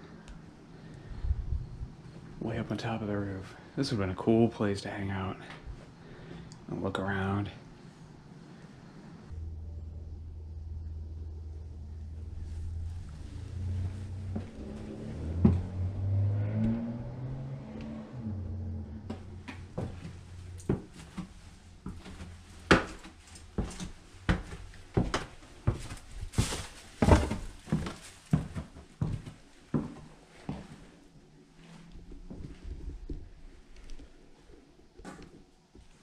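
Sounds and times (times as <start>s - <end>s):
low rumble: 0.9s - 2.7s, 9.3s - 24.9s
footsteps on hard floor: 13.7s - 15.8s, 19.1s - 30.8s.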